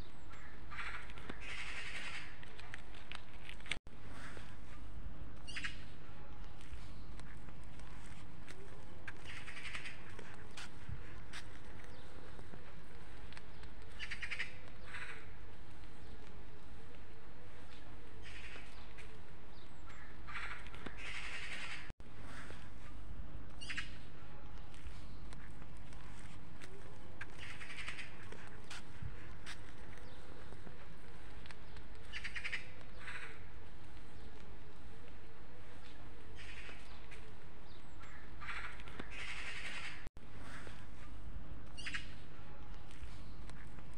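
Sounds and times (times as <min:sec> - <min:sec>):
bird calls: 0:00.0 - 0:02.4, 0:05.4 - 0:16.8, 0:17.5 - 0:22.9, 0:23.6 - 0:34.4, 0:35.6 - 0:41.1, 0:41.7 - 0:42.3
low outdoor background: 0:00.0 - 0:43.9
crows cawing: 0:00.3 - 0:02.4, 0:09.1 - 0:10.4, 0:13.9 - 0:15.4, 0:19.9 - 0:22.6, 0:27.4 - 0:28.5, 0:32.0 - 0:33.6, 0:38.0 - 0:40.8.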